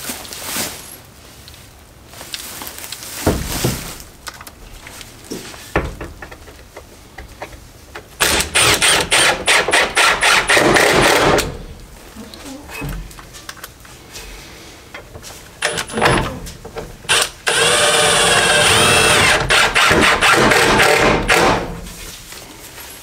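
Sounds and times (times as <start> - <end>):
knocks and thumps: 3.2 - 4.1, 5.2 - 8.4
impact driver rattling: 5.7 - 11.8, 15.6 - 21.9.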